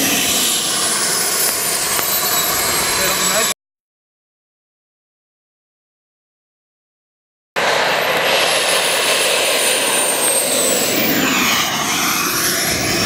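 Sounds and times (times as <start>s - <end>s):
high whine falling in pitch: 0.0s - 3.6s
jet turbines roaring: 0.0s - 3.6s, 7.6s - 13.0s.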